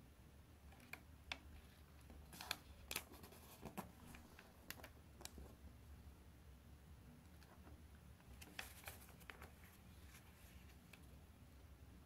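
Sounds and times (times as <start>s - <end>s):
paper crackling while folded: 8.3s - 10.8s.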